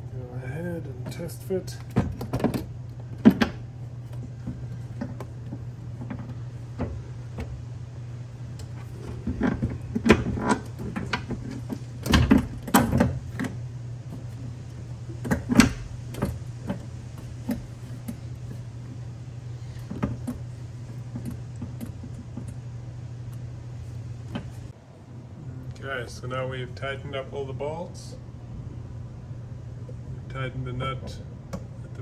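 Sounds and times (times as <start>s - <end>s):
steady low hum: 0.0s - 32.0s
knocks and clunks on metal bracket: 1.0s - 7.6s.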